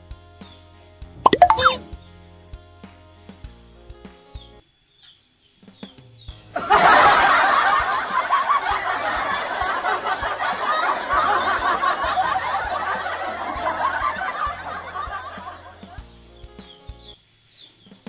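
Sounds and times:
laugh track: 6.6 - 16.1.

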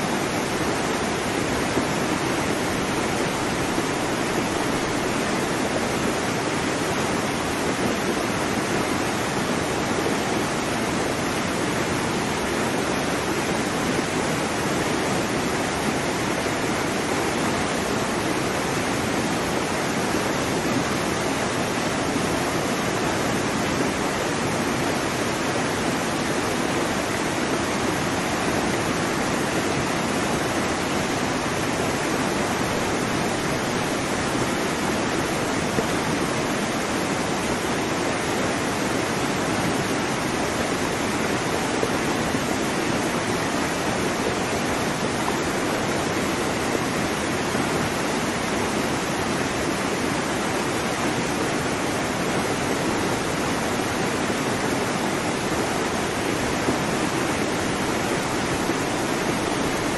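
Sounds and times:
rushing water: 0.0 - 59.9.

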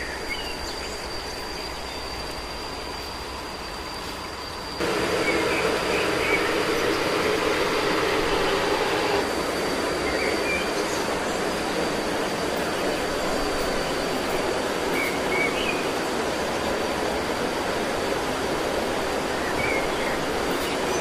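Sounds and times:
rushing outdoor noise: 0.0 - 21.0
thin high steady tone: 1.0 - 12.3.

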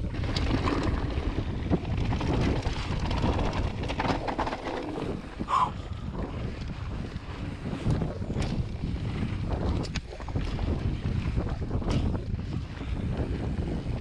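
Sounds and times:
bike clattering over bumps: 0.0 - 5.4, 6.5 - 12.4
bike tyres rolling on gravel: 0.0 - 5.4, 6.2 - 14.0
wind buffeting microphone: 0.0 - 14.0.

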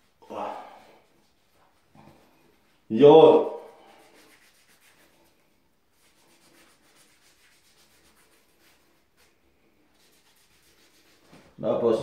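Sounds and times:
hands rubbing skin: 1.0 - 11.6.

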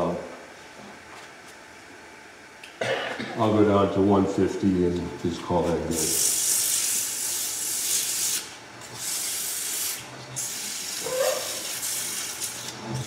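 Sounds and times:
sandpaper sanding wood on lathe: 5.6 - 13.0.

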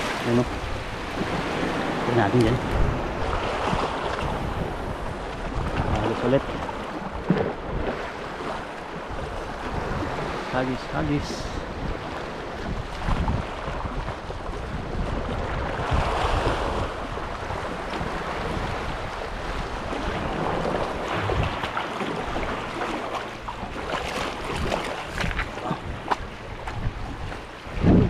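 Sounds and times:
sea waves washing on shore: 0.0 - 28.0
wind buffeting microphone: 0.0 - 28.0.

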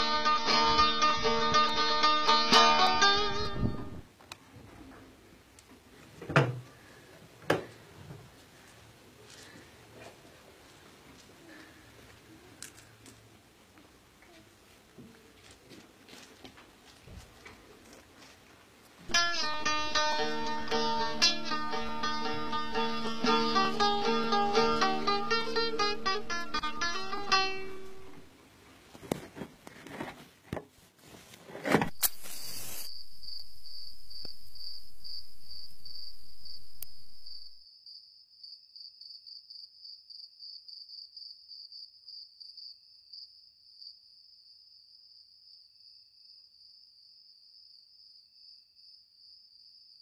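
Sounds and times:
soft rustles: 28.6 - 32.9
steady hiss: 32.0 - 37.4
crickets chirping: 32.0 - 50.0.

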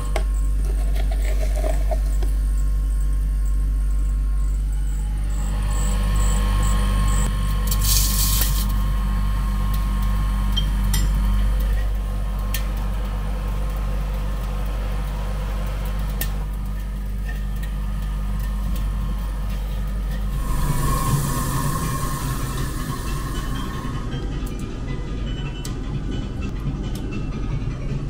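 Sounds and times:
motor humming: 0.0 - 26.5
sugar hissing: 7.7 - 8.8, 20.2 - 24.2.

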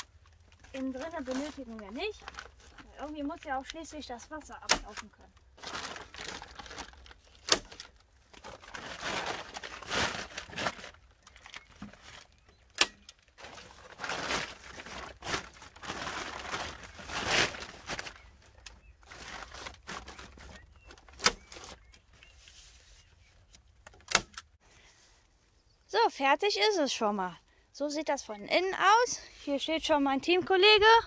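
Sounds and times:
plastic sheeting crinkling: 0.0 - 23.3.

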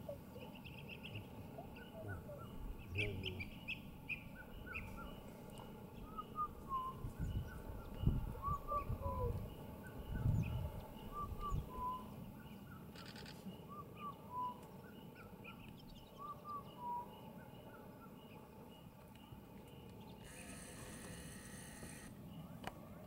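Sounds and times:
other birds calling: 0.0 - 6.5.

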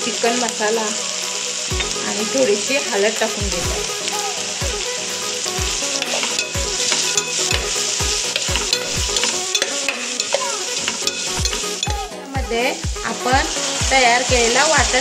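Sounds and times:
food sizzling in hot oil: 0.0 - 15.0
low thumps beat: 3.4 - 3.9, 7.5 - 9.3, 11.4 - 15.0
spatula stirring and scraping: 5.4 - 12.0.

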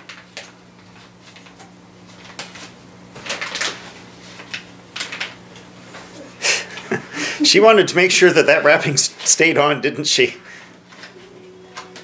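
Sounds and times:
plastic gift wrapping rustling: 0.0 - 5.4
low steady hum: 0.0 - 12.0.

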